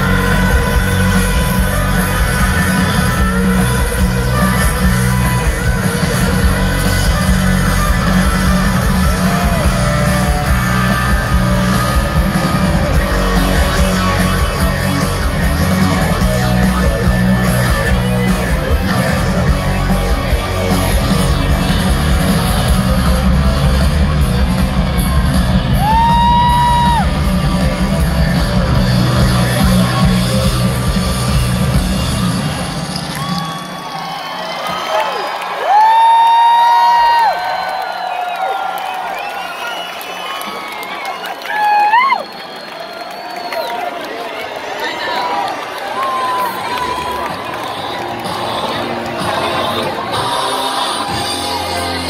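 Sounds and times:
vocals: 0.0s - 11.9s, 46.4s - 52.0s
heavy bass: 0.0s - 32.9s
electric guitar: 0.0s - 33.7s
rock band playing live: 0.0s - 35.0s, 45.7s - 52.0s.

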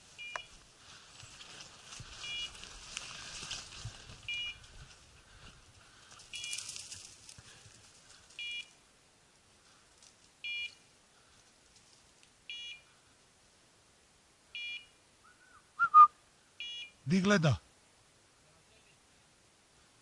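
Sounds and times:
short electronic beeps: 2.2s - 2.5s, 4.3s - 4.6s, 6.4s - 6.6s, 8.4s - 8.7s, 10.4s - 10.8s, 12.5s - 12.8s, 14.6s - 15.0s, 15.8s - 17.1s.

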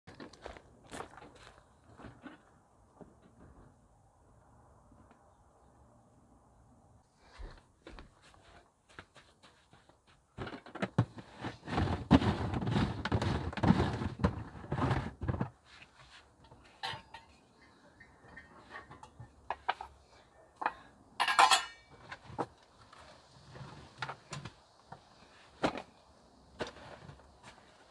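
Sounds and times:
plastic lid rubbing and scraping: 11.1s - 15.6s
cookware clatter: 16.8s - 17.4s, 20.6s - 21.9s
cookware knocking and clinking: 16.8s - 17.4s, 20.6s - 21.9s.

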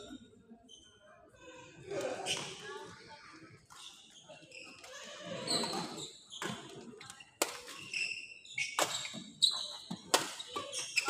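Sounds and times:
court shoes squeaking on floor: 2.2s - 2.6s, 3.7s - 11.0s
rackets hitting shuttlecock: 8.6s - 11.0s.

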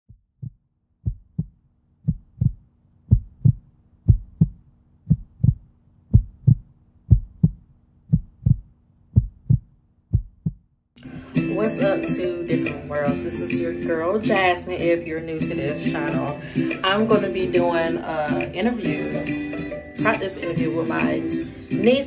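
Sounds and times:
heartbeat thumps: 0.1s - 10.7s.

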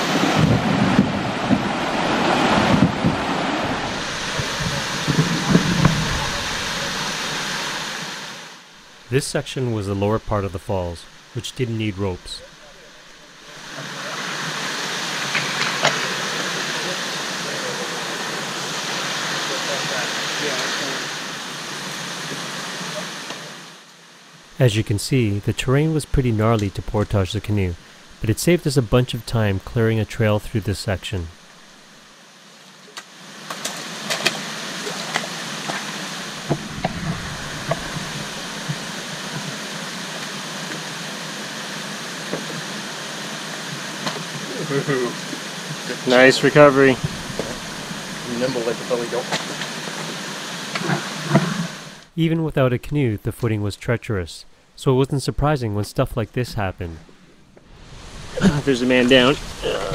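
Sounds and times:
waterfall rushing: 0.0s - 32.3s, 33.1s - 52.1s, 57.7s - 59.9s
low thumps: 2.5s - 7.1s, 36.4s - 38.9s, 46.9s - 48.2s.

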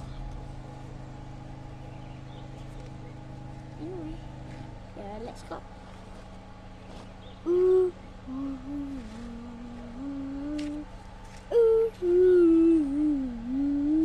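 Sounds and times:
person humming: 7.4s - 14.0s.

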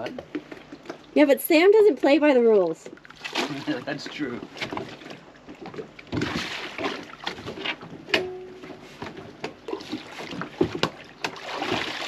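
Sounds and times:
water lapping: 0.4s - 7.9s, 8.7s - 12.0s
bumps and knocks on dinghy: 3.2s - 12.0s.

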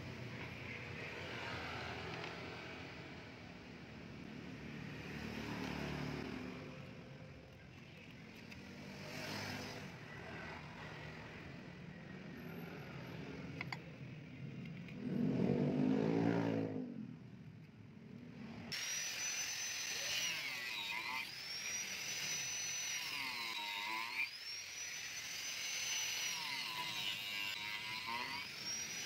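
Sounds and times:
angle grinder cutting wood: 8.4s - 10.7s, 18.7s - 29.0s
vehicle engine revving: 14.9s - 17.2s.

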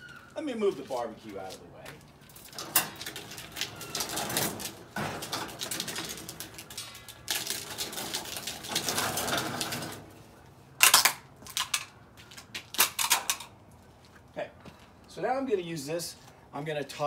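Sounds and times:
grill rattling and scraping on concrete: 2.3s - 10.3s.

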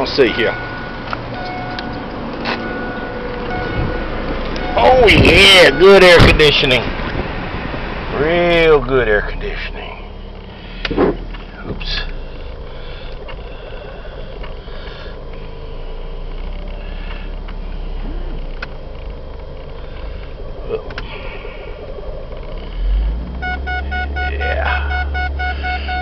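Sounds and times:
car engine idling: 0.0s - 26.0s
rapid electronic beeps: 2.6s - 6.7s, 20.4s - 26.0s.

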